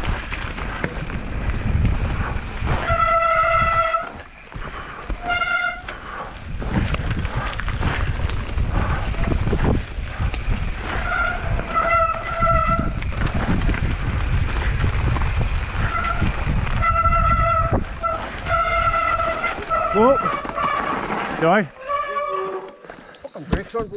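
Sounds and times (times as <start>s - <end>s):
wind on microphone: 0.0s - 20.4s
tyres rumbling over dirt: 0.0s - 23.9s
bike brakes squealing: 2.7s - 6.0s, 10.8s - 13.3s, 15.7s - 23.8s.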